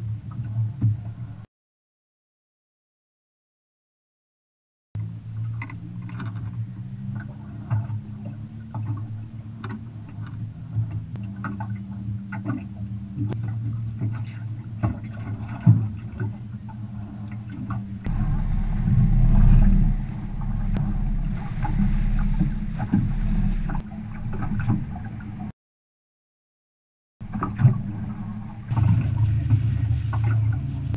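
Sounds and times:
water lapping against hull: 0:00.0 - 0:01.4, 0:05.0 - 0:25.5, 0:27.2 - 0:30.9
wind rumble on microphone: 0:00.0 - 0:01.5, 0:05.0 - 0:25.5, 0:27.2 - 0:30.9
low steady hum: 0:05.0 - 0:25.5, 0:27.2 - 0:30.9.

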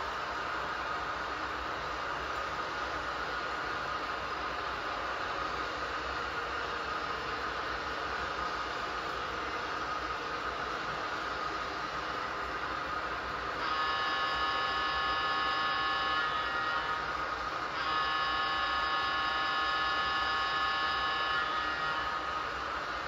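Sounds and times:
model trains hiss and hum: 0:00.0 - 0:23.0
model locomotive air horn: 0:13.5 - 0:23.0.

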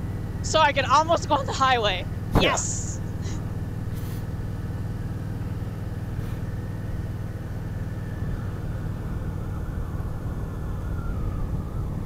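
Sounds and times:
motorcycle engine drone: 0:00.0 - 0:12.0
road and wind noise: 0:00.0 - 0:12.0.

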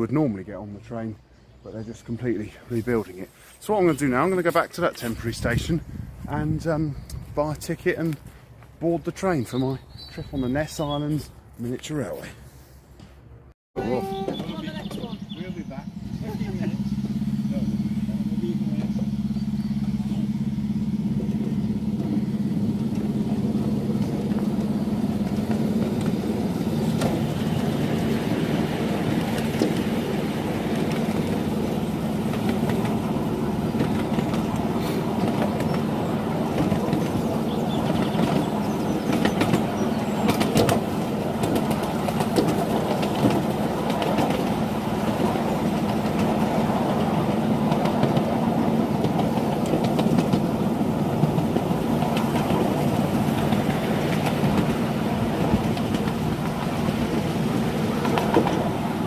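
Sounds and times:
diesel locomotive running: 0:00.0 - 0:13.1, 0:13.8 - 0:59.0
wheels clicking over rail joints: 0:13.8 - 0:59.0.

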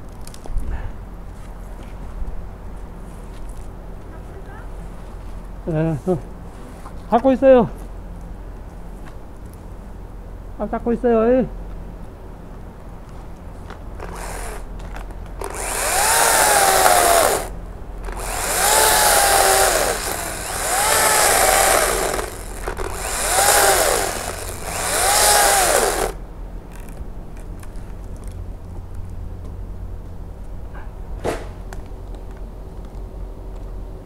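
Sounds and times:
electric chainsaw cutting wood: 0:14.0 - 0:14.7, 0:15.4 - 0:26.2.

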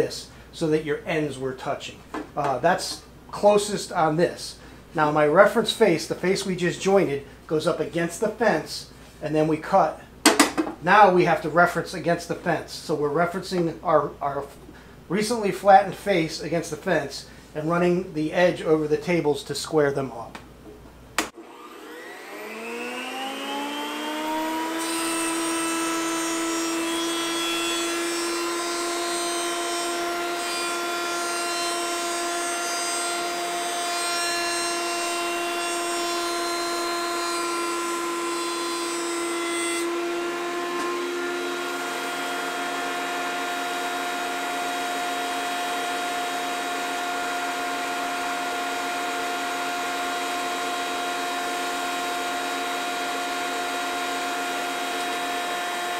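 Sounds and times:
jointer motor whine: 0:21.3 - 0:27.6, 0:39.8 - 0:55.9.

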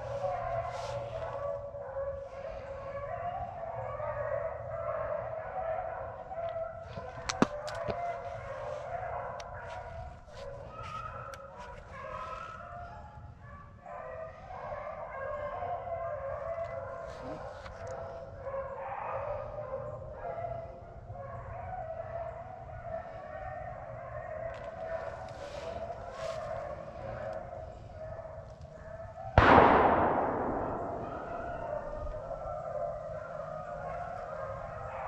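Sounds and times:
beagles baying: 0:29.0 - 0:35.0.

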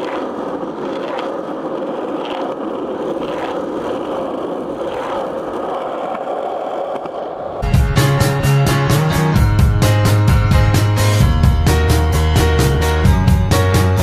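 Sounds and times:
skateboard wheels rolling on asphalt: 0:00.0 - 0:14.0
music: 0:07.6 - 0:14.0.

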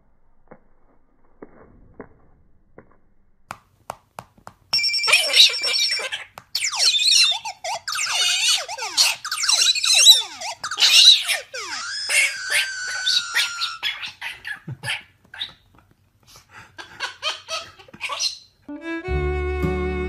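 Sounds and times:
ringing bell-like effect: 0:04.8 - 0:06.0
quick falling electronic tones: 0:06.6 - 0:13.8.

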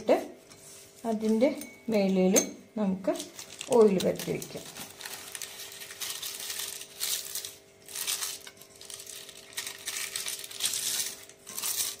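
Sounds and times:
paper crinkling and rustling: 0:03.2 - 0:12.0.

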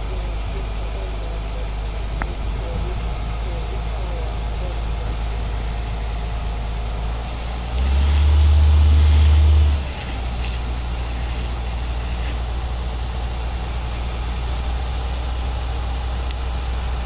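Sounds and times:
diesel engine drone: 0:00.0 - 0:17.0
steady hiss: 0:04.7 - 0:17.0.

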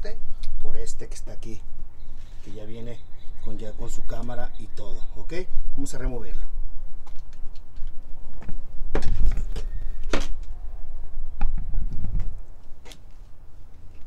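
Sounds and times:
microphone handling knocks: 0:08.4 - 0:10.5.

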